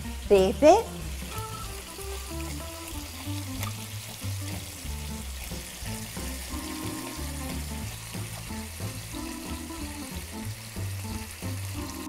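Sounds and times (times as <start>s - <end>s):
background music: 0.0s - 12.0s
meat sizzling in oil: 0.0s - 12.0s.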